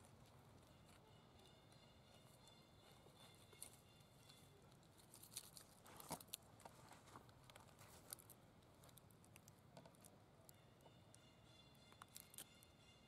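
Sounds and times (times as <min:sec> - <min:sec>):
dry leaves rustling and crackling: 0:02.8 - 0:08.3.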